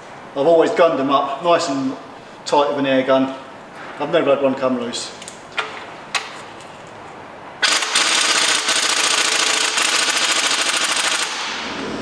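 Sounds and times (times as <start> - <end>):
air impact gun rattling: 7.6 - 11.7.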